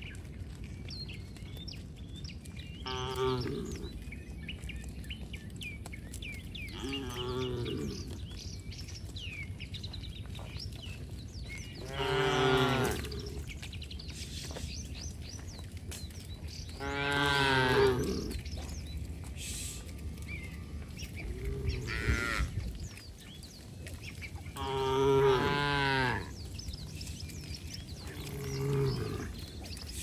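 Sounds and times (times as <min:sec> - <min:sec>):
cattle mooing: 0:02.8 - 0:03.8, 0:06.8 - 0:08.2, 0:11.8 - 0:13.4, 0:16.8 - 0:18.4, 0:20.2 - 0:22.6, 0:24.6 - 0:26.4, 0:28.0 - 0:29.4.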